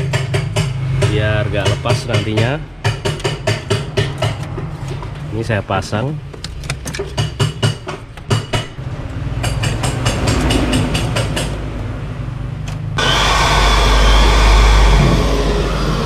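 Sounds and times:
electric drill running: 13.0s - 16.0s.

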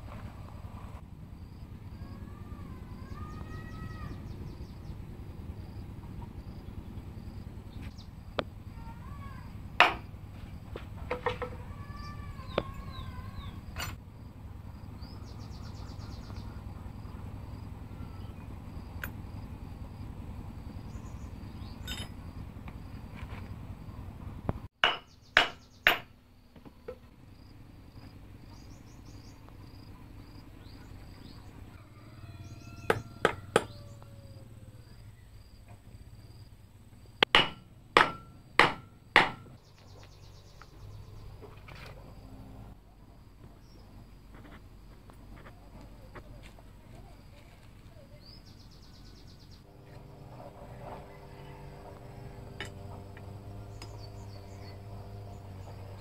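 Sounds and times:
insects chirping: 1.3s - 24.1s, 24.8s - 56.0s
hammer knocking on wooden block: 9.8s - 10.0s, 24.8s - 26.1s, 32.9s - 33.8s, 37.2s - 39.5s.

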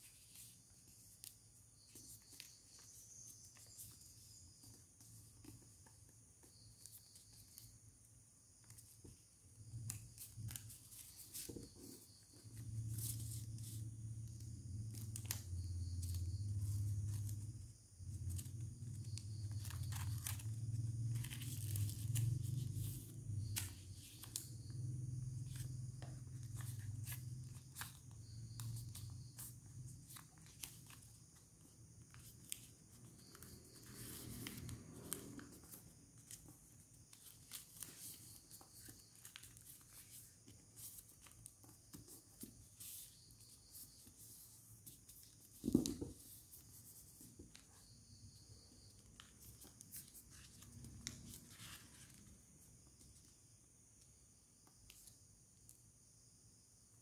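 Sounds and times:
paper crinkling and rustling: 18.2s - 24.6s, 26.3s - 43.1s.

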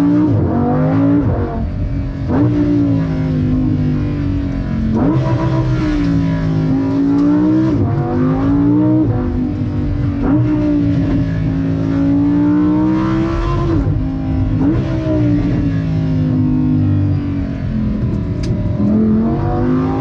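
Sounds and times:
car engine revving hard: 0.0s - 20.0s.

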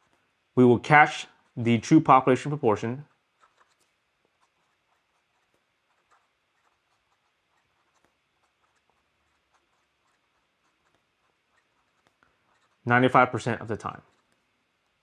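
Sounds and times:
pen nib scratching on paper: 0.0s - 0.3s, 1.0s - 15.0s.

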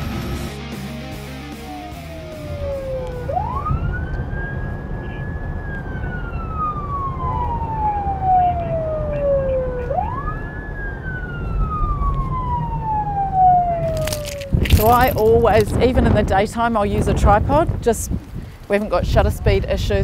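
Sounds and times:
police siren wailing: 1.4s - 15.3s.

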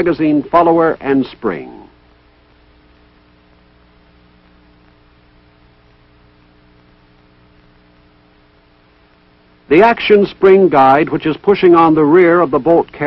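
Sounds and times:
film soundtrack hum and hiss: 0.0s - 13.0s.

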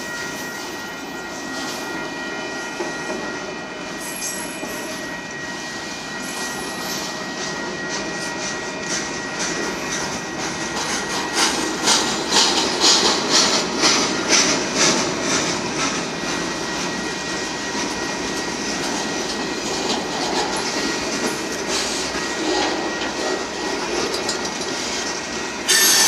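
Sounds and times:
thin high whine: 0.0s - 26.0s
train wheels rumbling on rail: 0.0s - 26.0s
wheels clacking over rail joints: 8.8s - 26.0s.

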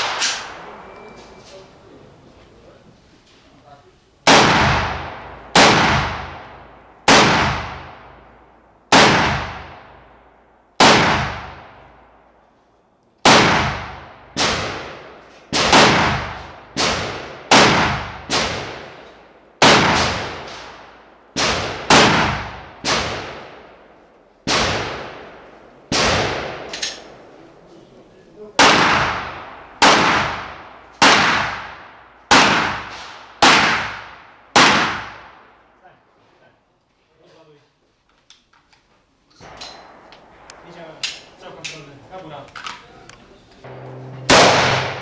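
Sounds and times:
echoing gunshots: 0.0s - 1.0s, 4.2s - 12.3s, 13.2s - 27.4s, 28.6s - 35.7s, 39.4s - 42.4s, 43.6s - 45.0s.

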